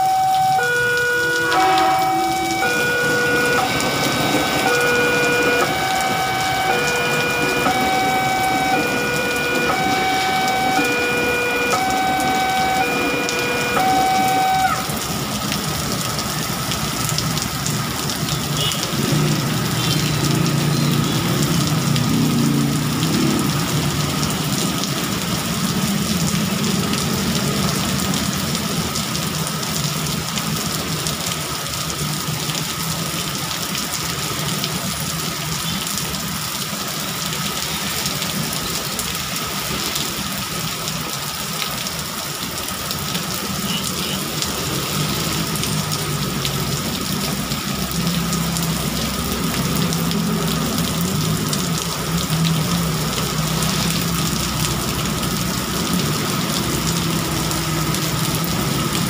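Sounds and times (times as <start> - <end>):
heavy rain on street: 0.0 - 59.0
passing motorbikes and cars: 17.4 - 28.6.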